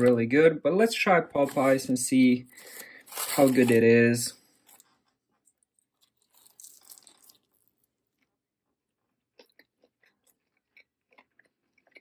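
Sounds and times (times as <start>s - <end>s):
chewing crunchy food: 4.5s - 12.0s.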